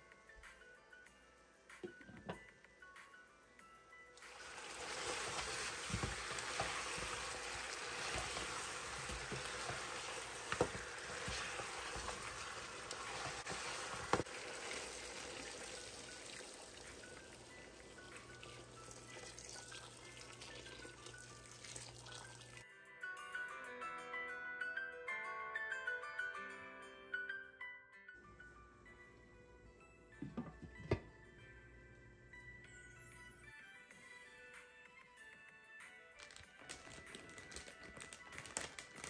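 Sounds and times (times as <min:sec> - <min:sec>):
water hitting hot fat sizzling: 0:04.2 - 0:22.6.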